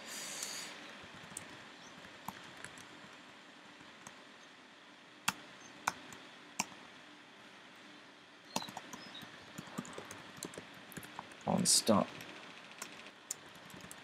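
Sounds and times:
keyboard typing: 2.2 - 2.9, 8.6 - 14.0.

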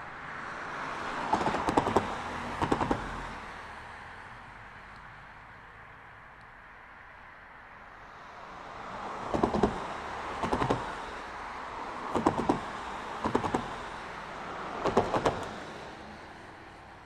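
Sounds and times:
steady rushing noise: 7.7 - 17.0.

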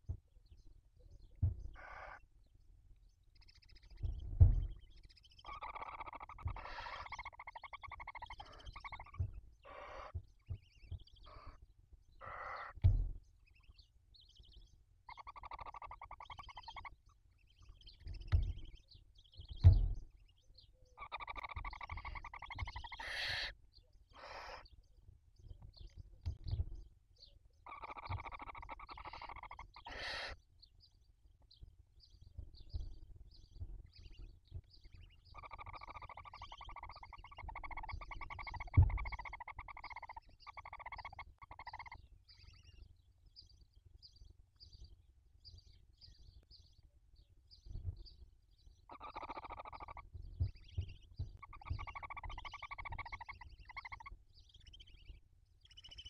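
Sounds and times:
owl chicks buzzy chittering: 0.0 - 2.5, 3.2 - 56.0
dull knocks against nest box: 12.8 - 13.2.

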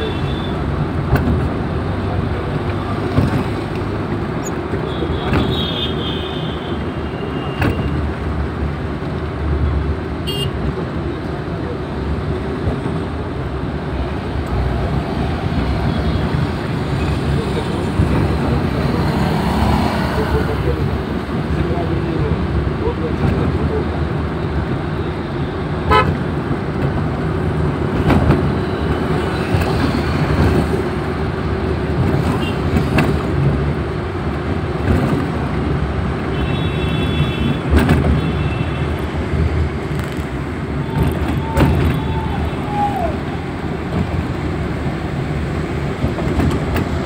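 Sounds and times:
vehicle horns tooting: 0.0 - 0.7, 4.8 - 8.0, 10.2 - 10.6, 25.0 - 26.2, 36.3 - 39.0
road and engine noise inside vehicle: 0.0 - 47.0.

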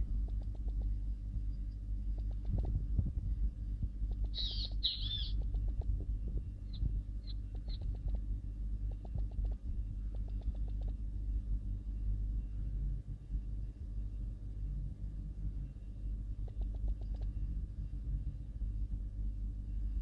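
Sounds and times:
steady low rumble: 0.0 - 20.0
bird harsh calls: 4.3 - 5.4.

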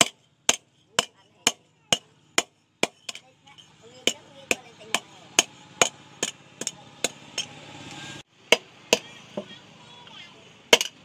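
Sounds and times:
hammer striking steel on anvil: 0.0 - 7.6, 10.7 - 11.0.

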